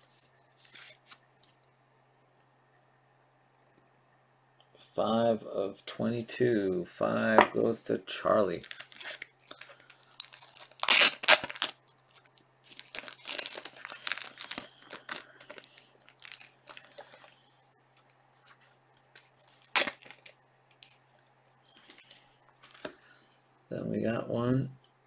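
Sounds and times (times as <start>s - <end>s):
plastic card sleeves crinkling: 0.0s - 1.7s, 8.3s - 23.0s.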